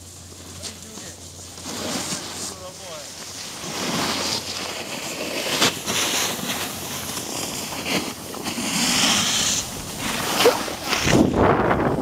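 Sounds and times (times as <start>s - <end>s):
ski edges scraping snow: 0.0s - 12.0s
wind rushing over microphone: 5.8s - 12.0s.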